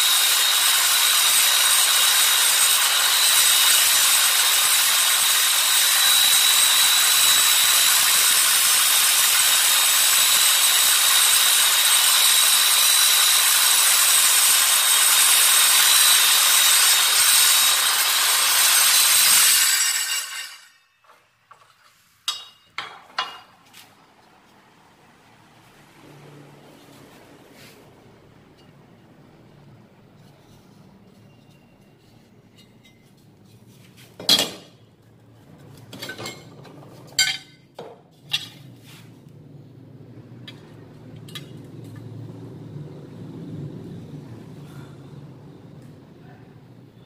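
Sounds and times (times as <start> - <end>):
miter saw cutting steel: 0.0 - 21.2.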